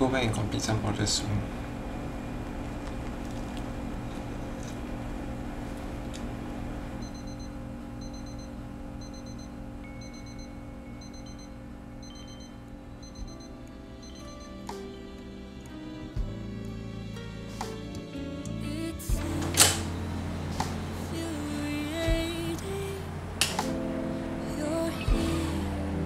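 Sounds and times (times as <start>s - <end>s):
low steady hum: 0.0s - 17.3s, 18.3s - 26.0s
digital timer alarm beeping: 7.0s - 14.7s.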